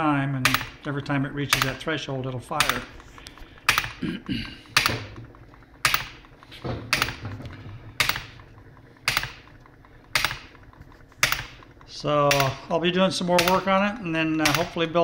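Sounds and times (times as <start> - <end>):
solenoid clacking: 0.0 - 15.0
model engine mechanical rattle: 4.6 - 15.0.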